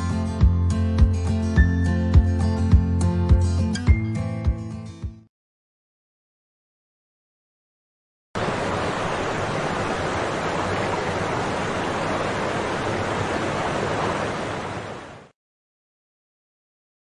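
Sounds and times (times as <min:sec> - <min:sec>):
waterfall rushing: 0:08.4 - 0:15.3.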